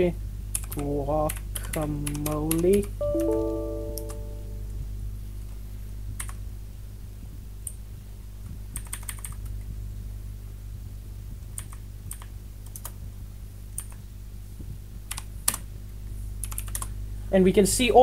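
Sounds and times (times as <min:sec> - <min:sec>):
computer keyboard keystrokes: 0:00.5 - 0:03.0, 0:06.2 - 0:06.4, 0:08.8 - 0:09.5, 0:11.6 - 0:13.0, 0:13.8 - 0:14.0, 0:15.1 - 0:15.6, 0:16.4 - 0:16.9
low steady hum: 0:02.9 - 0:05.5.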